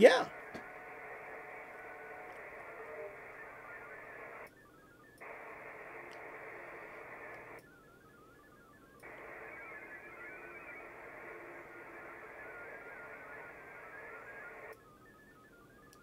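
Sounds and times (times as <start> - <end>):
hissy digital data signal: 0.3 - 15.2
faint chirping tones: 0.3 - 16.0.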